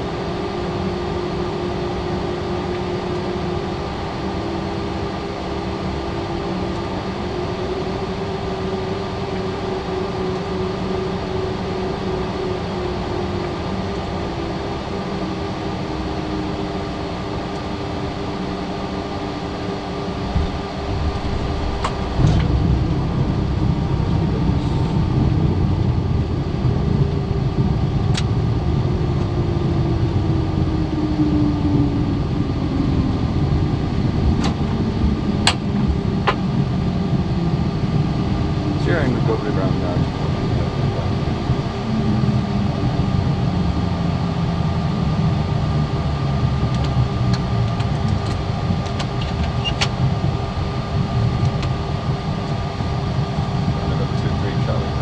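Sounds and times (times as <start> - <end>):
jet engines and airflow: 0.0 - 55.0
landing rollout rumble: 20.0 - 28.8.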